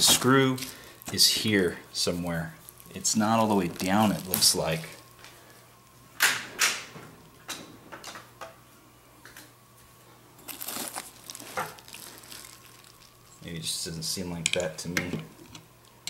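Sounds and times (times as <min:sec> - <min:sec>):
bubble wrap crinkling: 0:00.0 - 0:05.5, 0:10.4 - 0:13.7.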